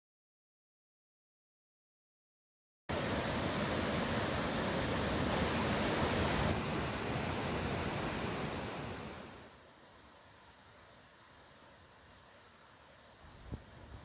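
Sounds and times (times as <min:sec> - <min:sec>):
faint outdoor ambience: 0:02.9 - 0:14.0
stream water rushing: 0:02.9 - 0:14.0.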